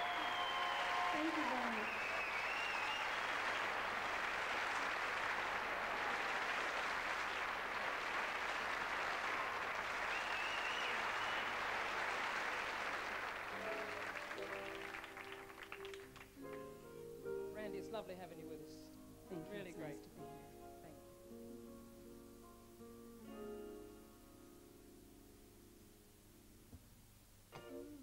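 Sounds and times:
audience applauding: 0:00.0 - 0:16.7.

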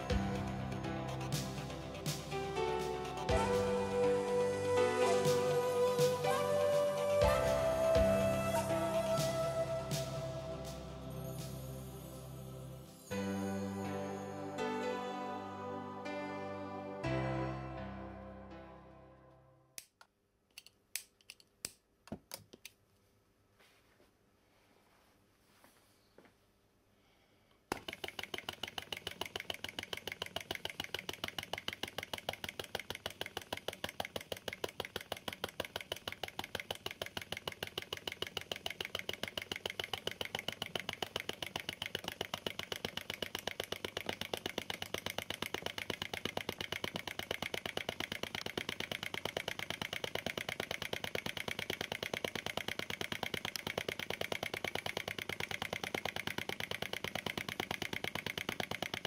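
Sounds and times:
model engine popping: 0:27.7 - 0:59.0.

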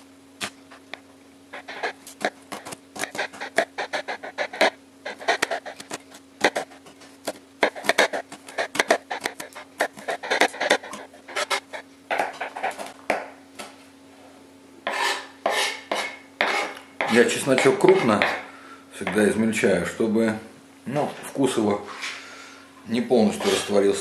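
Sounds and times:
knife chopping on cutting board: 0:02.1 - 0:13.4, 0:14.8 - 0:19.3.

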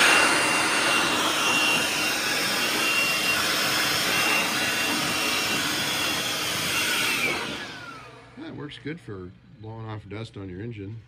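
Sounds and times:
blower air rush: 0:00.0 - 0:08.6
high motor whine: 0:00.0 - 0:08.6.

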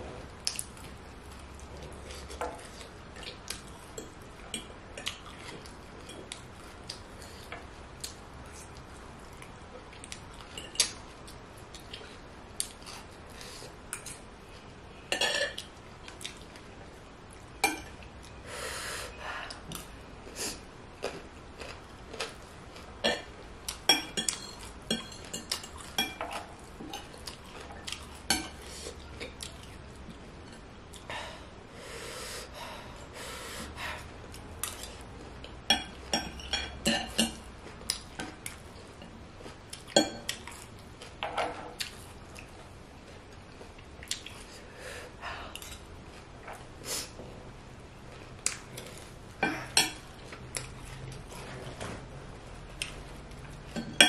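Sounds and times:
chewing: 0:19.5 - 0:31.1.

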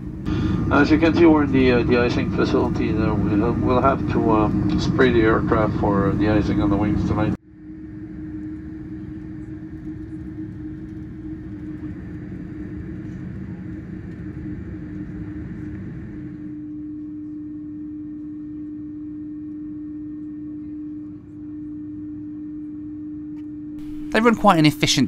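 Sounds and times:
aircraft cabin rumble: 0:00.0 - 0:07.4, 0:08.1 - 0:16.5, 0:23.8 - 0:25.0
jet engines idling hum: 0:00.0 - 0:22.4.

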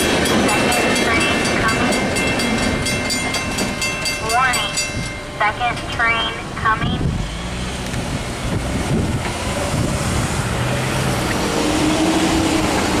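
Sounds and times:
electric train rumble: 0:00.0 - 0:13.0
wind on microphone: 0:07.9 - 0:13.0.

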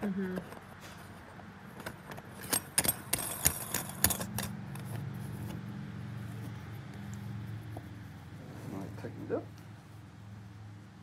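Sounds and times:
small metal parts clinking: 0:01.7 - 0:05.1.

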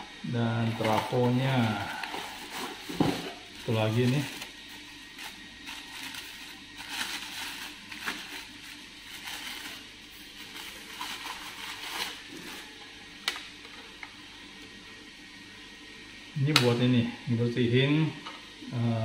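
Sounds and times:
plastic bag crinkling: 0:00.8 - 0:12.8.

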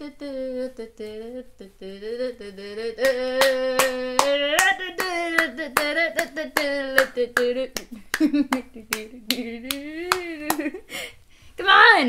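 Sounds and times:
person humming a tune: 0:00.0 - 0:10.9
hand claps keeping time: 0:03.0 - 0:10.8.

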